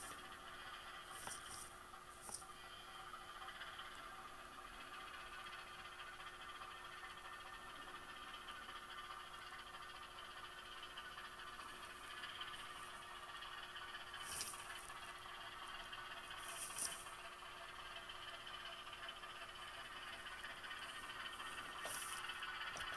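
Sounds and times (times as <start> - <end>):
model locomotive engine sound: 0.0 - 22.9
short hissing bursts: 21.4 - 22.4.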